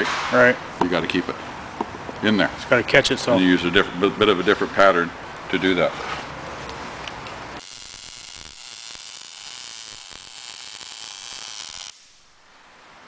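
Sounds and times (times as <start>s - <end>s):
welding arc hissing: 7.6s - 12.4s.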